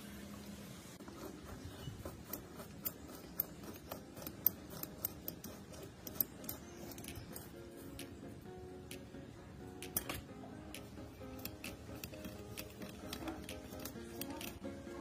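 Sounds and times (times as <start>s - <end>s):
hand tool clicking on screws: 1.1s - 8.2s, 9.8s - 14.6s.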